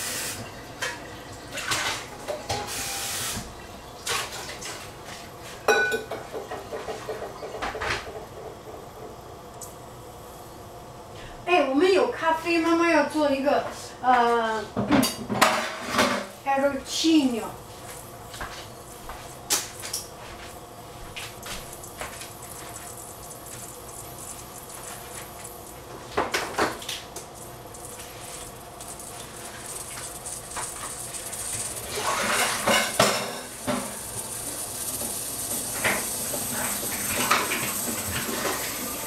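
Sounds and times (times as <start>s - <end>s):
high hiss: 2.6s - 3.5s, 16.3s - 39.0s.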